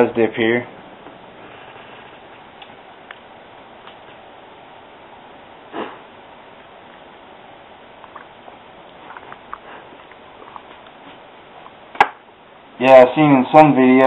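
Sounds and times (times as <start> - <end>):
low steady hiss: 0.0 - 14.0
person sniffing: 5.7 - 6.1.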